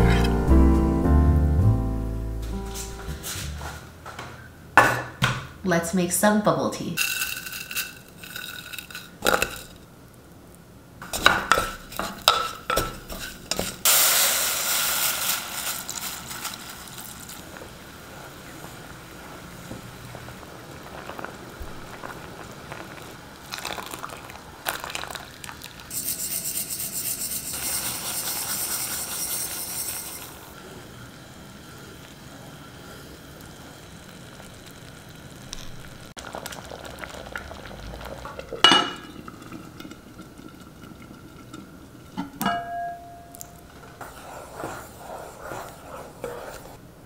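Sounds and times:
sizzling hiss: 0:05.8 - 0:47.0
syrup simmering in a pot: 0:11.2 - 0:26.1, 0:27.6 - 0:42.2, 0:43.4 - 0:46.9.

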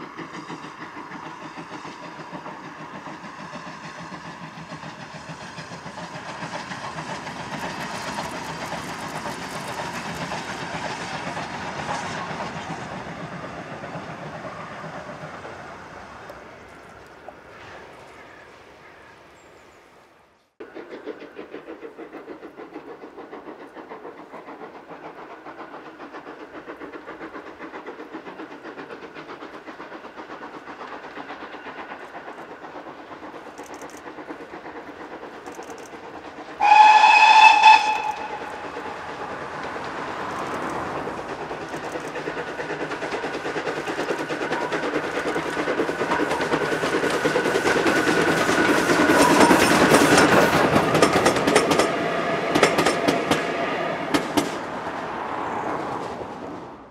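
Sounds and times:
steam locomotive exhaust beats: 0:00.0 - 0:19.6, 0:20.6 - 0:56.9
steam whistle blast: 0:36.6 - 0:38.9.

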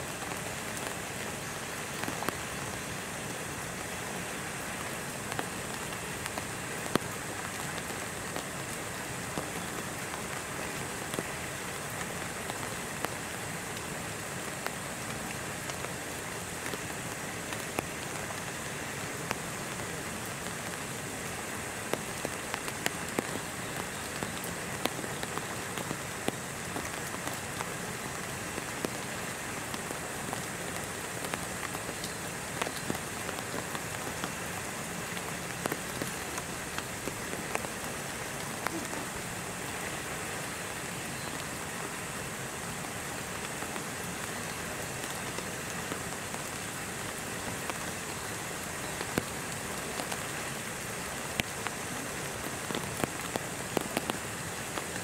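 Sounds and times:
raindrops striking close by: 0:00.0 - 0:55.0
steady rain: 0:00.0 - 0:55.0.

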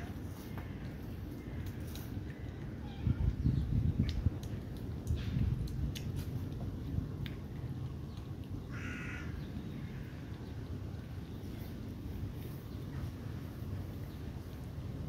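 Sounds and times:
low background rumble: 0:00.0 - 0:15.0
crow cawing: 0:08.7 - 0:09.3.

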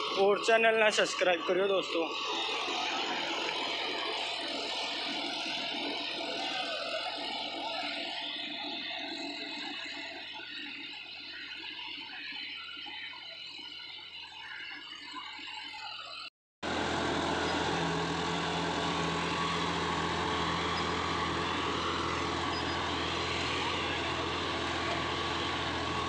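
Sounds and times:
tractor diesel engine under load: 0:00.0 - 0:09.3, 0:16.6 - 0:26.0.

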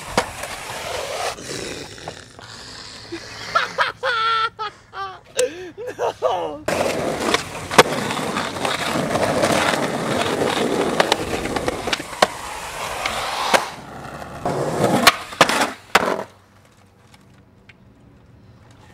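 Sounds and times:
skateboard clacks: 0:00.0 - 0:01.2, 0:06.7 - 0:17.8
skateboard scraping concrete ledge: 0:00.0 - 0:02.2, 0:06.7 - 0:17.2
skateboard wheels rolling on concrete: 0:00.0 - 0:04.5, 0:05.2 - 0:18.9.

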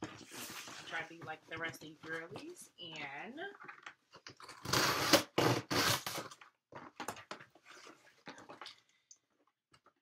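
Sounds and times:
box cutter slitting packing tape: 0:04.5 - 0:06.4.

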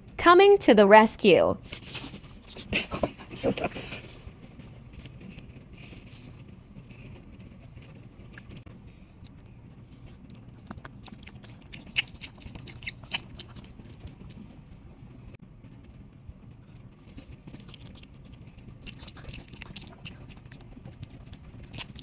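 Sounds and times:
low hum: 0:00.0 - 0:22.0
dog chewing: 0:03.8 - 0:14.8, 0:16.8 - 0:22.0.

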